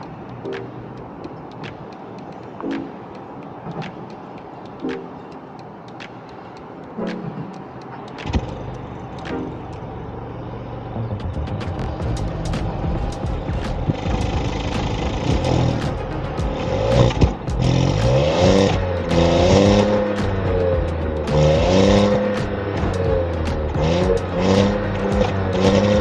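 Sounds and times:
car engine revving: 0:08.2 - 0:26.0.

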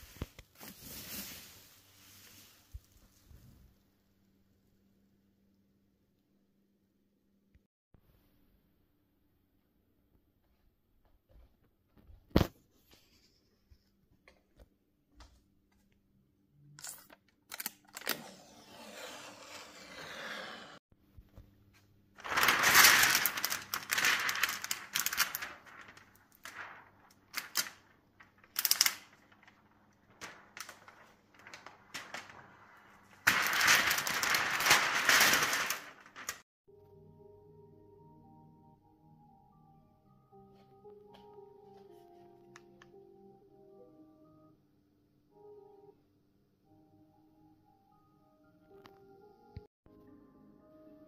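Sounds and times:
plastic film crackling: 0:22.2 - 0:36.4.

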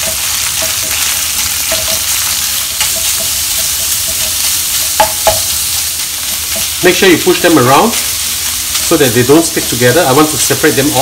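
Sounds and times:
meat sizzling in oil: 0:00.0 - 0:11.0
sharp knocks on wok: 0:05.0 - 0:05.5.

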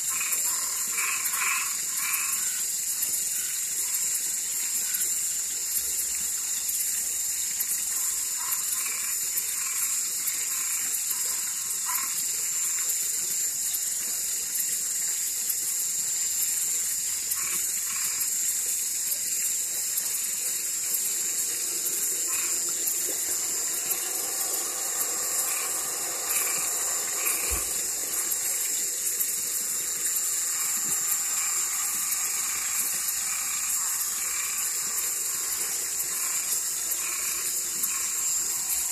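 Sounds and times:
shrill frog drone: 0:00.0 - 0:02.7, 0:07.8 - 0:12.8, 0:20.2 - 0:38.9
frogs croaking: 0:00.0 - 0:38.9
lower pitched frog chorus: 0:00.0 - 0:38.9.

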